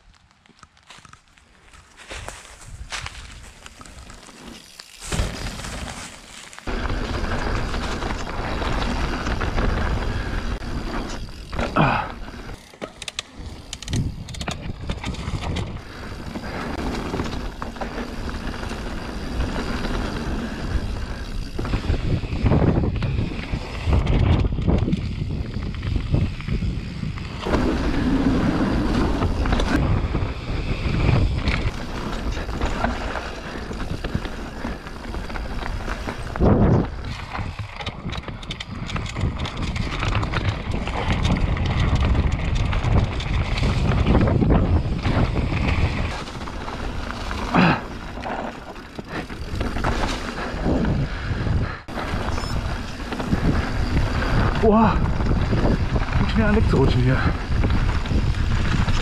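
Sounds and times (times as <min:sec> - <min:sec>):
tyres rumbling on dirt: 0:03.2 - 0:59.0
bike knocking over bumps: 0:03.7 - 0:10.3
wind rushing over microphone: 0:13.4 - 0:59.0.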